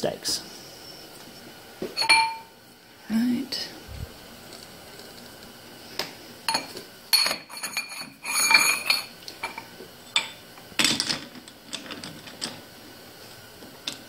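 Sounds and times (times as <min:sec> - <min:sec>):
steel pipe clanking against chuck: 0:02.0 - 0:02.5.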